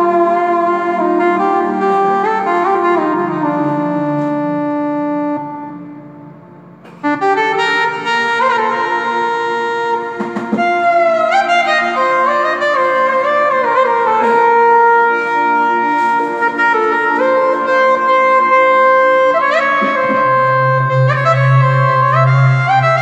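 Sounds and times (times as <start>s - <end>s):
keyboard melody over held chord: 0.0s - 23.0s
low bass note: 19.9s - 23.0s.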